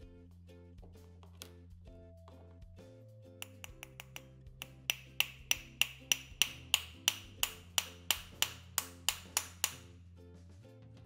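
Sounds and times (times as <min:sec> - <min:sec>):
hammer tapping metal: 0:03.4 - 0:09.9.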